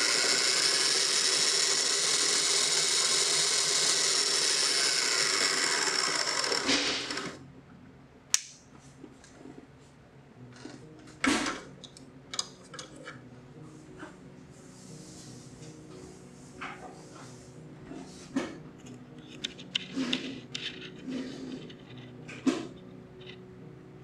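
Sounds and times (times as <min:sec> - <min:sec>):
bandsaw running: 0:00.0 - 0:07.4.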